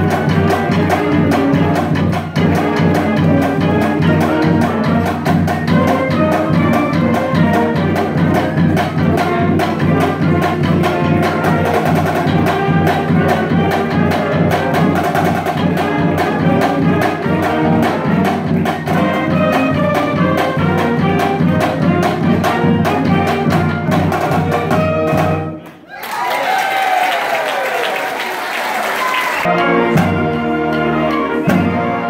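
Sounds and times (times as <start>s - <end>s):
steady drum beat: 0.0s - 25.6s
marching band playing: 0.0s - 25.7s, 26.7s - 32.0s.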